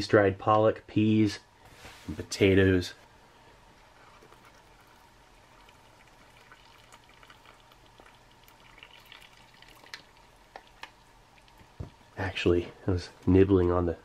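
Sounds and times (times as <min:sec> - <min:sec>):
water trickling into foil pouch: 0:04.0 - 0:11.8.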